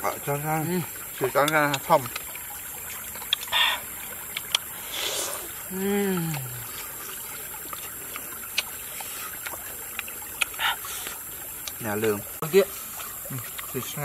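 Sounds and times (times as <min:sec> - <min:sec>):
stream water rushing: 0:00.0 - 0:14.0
person humming low: 0:05.7 - 0:06.7.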